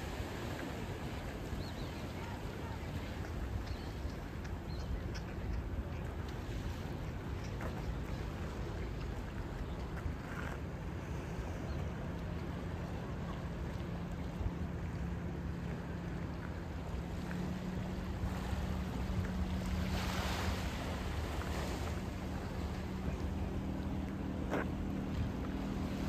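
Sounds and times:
boat engine humming: 0.0s - 26.0s
wind rumble on microphone: 0.0s - 26.0s.

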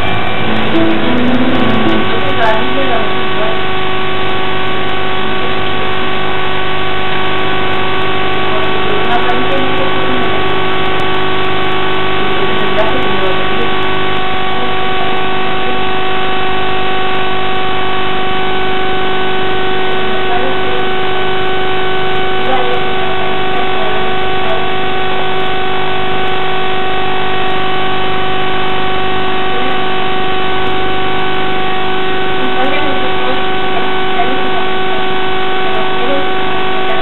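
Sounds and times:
loud steady droning tone: 0.0s - 37.0s
faint voice: 22.4s - 24.8s, 32.4s - 37.0s.

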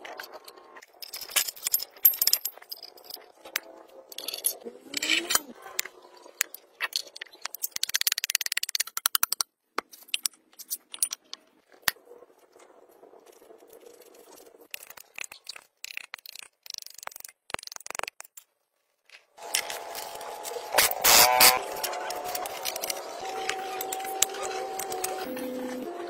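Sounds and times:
metal parts clicking and rattling: 0.0s - 11.9s, 13.3s - 18.5s, 19.4s - 25.9s.

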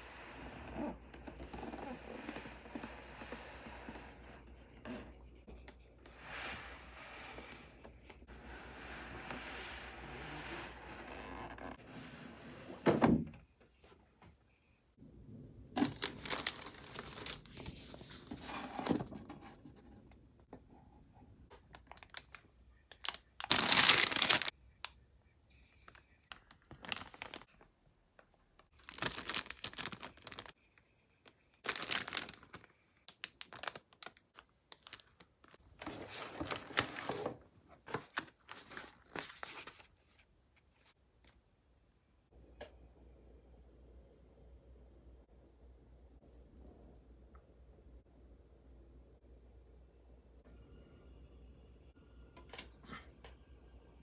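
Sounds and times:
plastic bags crinkling: 15.8s - 17.6s, 21.8s - 24.5s, 25.9s - 27.6s, 28.8s - 30.6s, 31.6s - 35.6s.

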